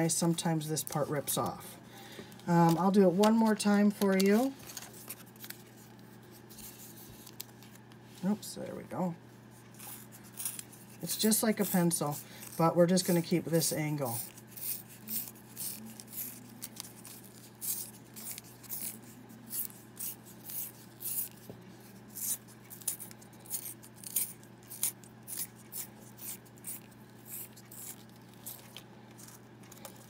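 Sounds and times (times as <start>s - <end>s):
sharpener blade scraping paper straw: 9.7s - 30.0s.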